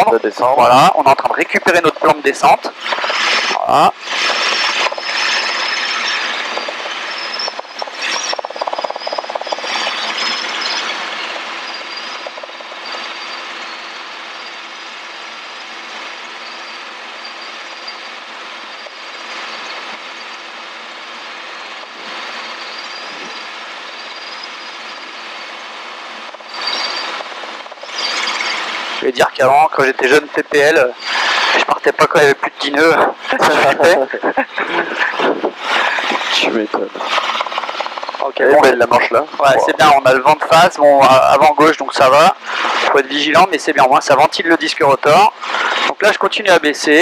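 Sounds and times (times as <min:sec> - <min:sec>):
helicopter rotor and engine drone: 0:00.0 - 0:47.0
high wavering whine: 0:00.0 - 0:47.0.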